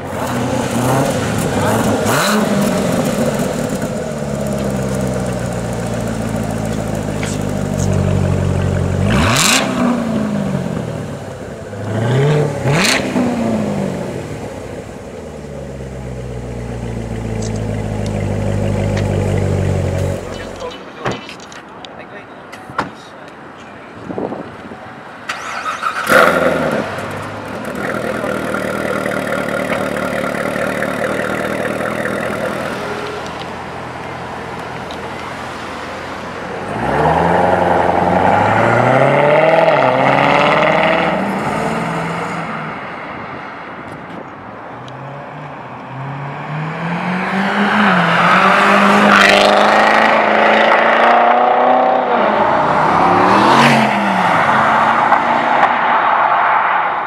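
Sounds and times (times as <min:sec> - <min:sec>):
car engine idling: 0:00.0 - 0:09.2, 0:14.1 - 0:20.8, 0:25.4 - 0:36.5
car engine revving and accelerating: 0:00.0 - 0:15.0, 0:25.4 - 0:33.9, 0:36.6 - 0:42.9, 0:45.0 - 0:56.8.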